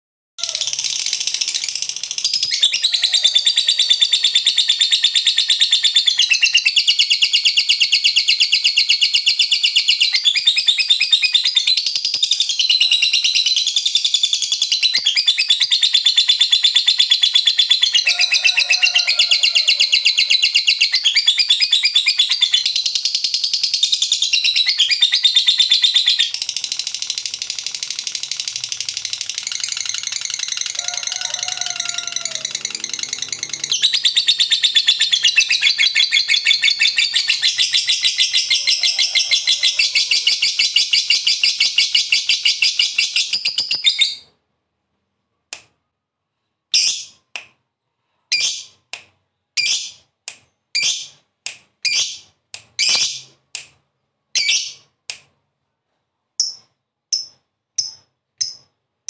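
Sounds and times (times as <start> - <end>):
lovebird chattering trill: 0.4 - 44.2.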